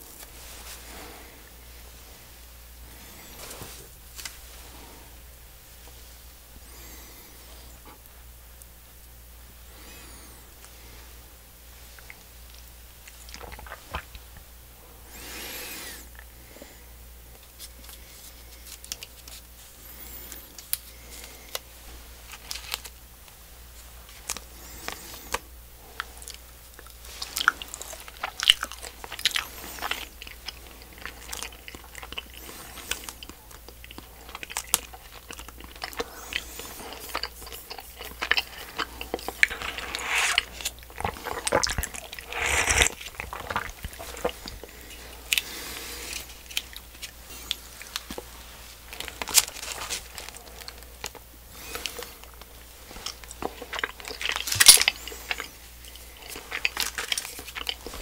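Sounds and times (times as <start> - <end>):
close-up chewing candy: 11.9 - 14.3, 15.1 - 58.0.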